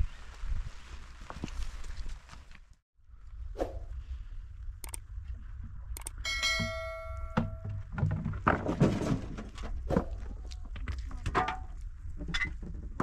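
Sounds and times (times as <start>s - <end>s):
metal object struck ringing: 6.2s - 7.7s
knocks and thumps: 7.3s - 10.2s.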